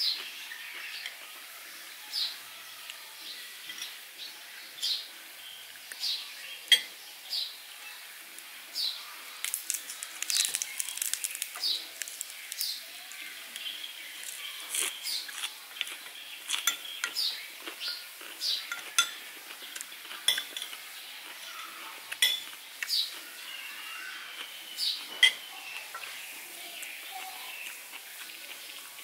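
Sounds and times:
cutlery clinking on plates: 3.6s - 4.0s, 6.7s - 7.0s, 16.5s - 18.0s, 18.6s - 20.8s, 22.1s - 22.6s, 24.9s - 26.2s.

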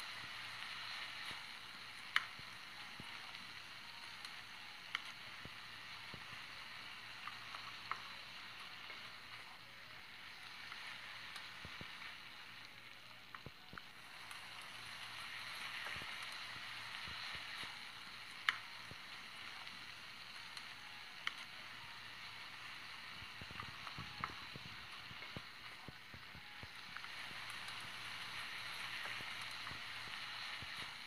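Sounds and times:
chicken sizzling in hot oil: 0.0s - 31.0s.

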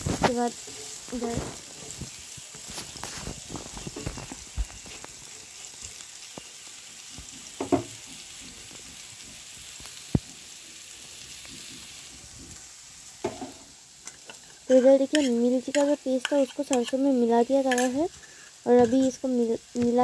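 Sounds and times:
wooden spatula scraping a pan: 0.0s - 5.1s, 7.2s - 9.4s, 11.4s - 20.0s
vegetables sizzling in oil: 0.0s - 20.0s.

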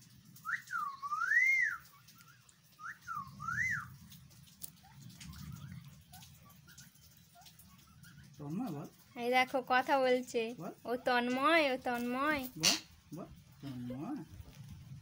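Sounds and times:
parakeet whistling: 0.4s - 4.0s.

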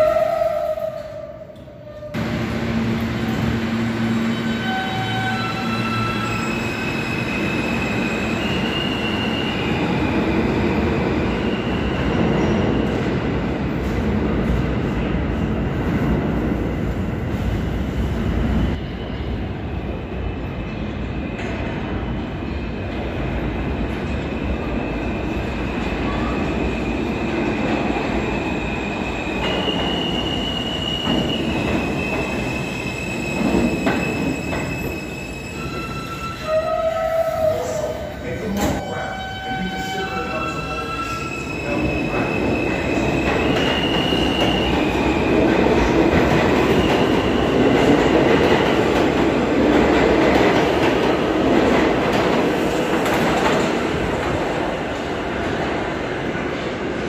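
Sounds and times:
subway train wheels rumbling: 0.0s - 57.0s
train wheels squealing: 4.1s - 10.4s, 24.3s - 38.0s, 38.6s - 45.4s.

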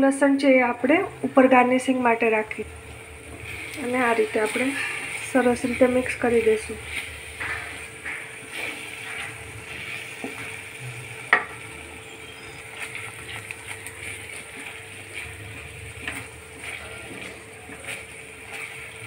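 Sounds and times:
low sizzle of frying: 0.0s - 19.0s
spatula scraping pan: 3.3s - 10.8s, 11.4s - 19.0s.

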